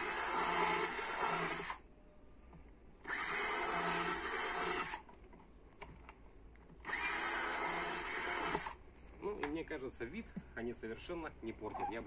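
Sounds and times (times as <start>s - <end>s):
drill drilling through plastic: 0.0s - 1.8s, 3.0s - 5.0s, 6.8s - 8.8s.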